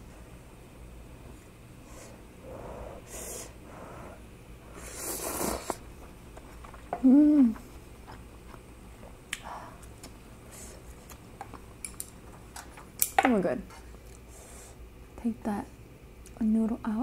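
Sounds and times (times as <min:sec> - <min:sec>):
noodles slurped: 0:04.8 - 0:05.8
person humming: 0:07.0 - 0:07.6.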